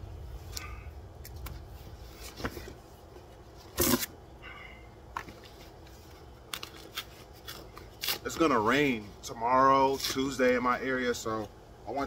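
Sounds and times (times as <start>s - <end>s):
cardboard ripping: 3.6s - 4.1s, 6.5s - 8.4s.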